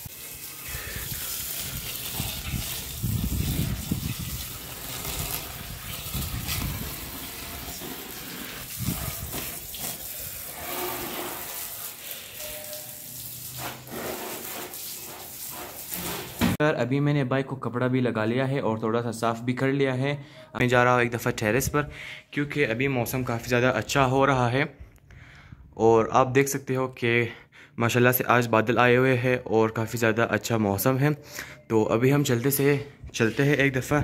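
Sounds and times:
hose water splashing on concrete: 0.0 - 16.6.

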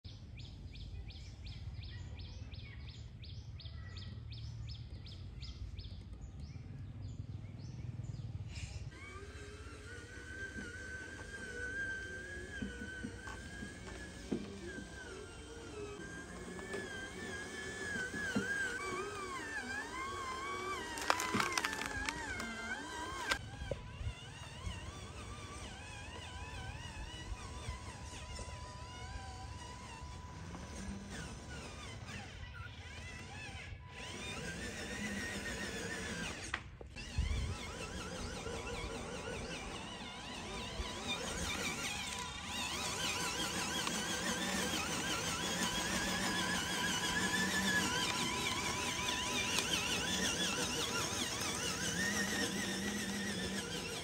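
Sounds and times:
toy electric motors whining: 8.1 - 54.0
sharp clicks: 20.8 - 23.4.

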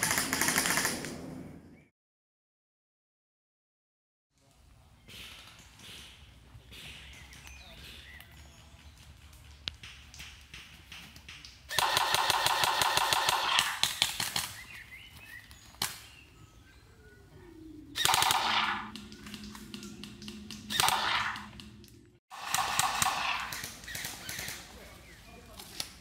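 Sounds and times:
electronic rifle gunshot effect: 11.7 - 13.8, 18.0 - 19.0, 20.7 - 21.6, 22.3 - 24.1.

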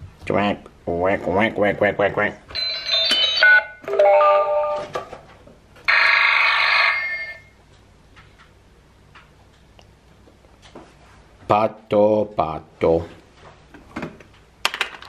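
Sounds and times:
toy electronic tone: 2.6 - 4.8, 5.9 - 7.5
buzzy electronic ring: 5.9 - 7.6.

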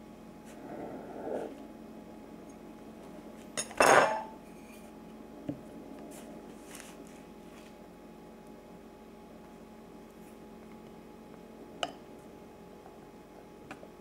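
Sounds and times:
kitchenware clattering: 3.6 - 4.8.

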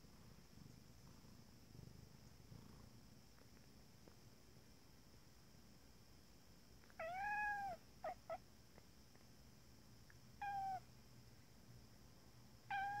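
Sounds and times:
cat meowing and chirping: 7.0 - 8.4, 10.4 - 10.9, 12.7 - 13.0.

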